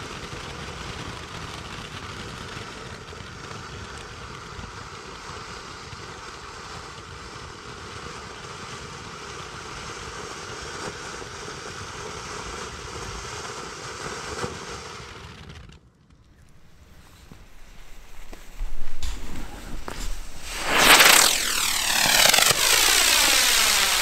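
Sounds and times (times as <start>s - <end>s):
sharp crackles: 16.0s - 24.0s
firework hissing: 16.5s - 24.0s.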